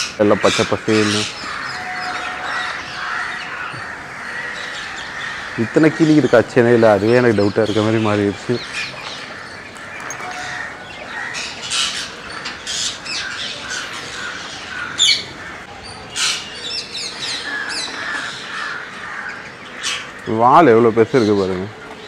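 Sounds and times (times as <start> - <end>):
parakeets screeching and squawking: 0.0 - 22.0.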